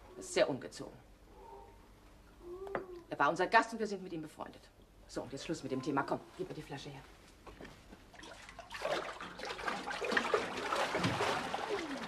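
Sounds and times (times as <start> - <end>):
water splashing in a bathtub: 8.0 - 12.0.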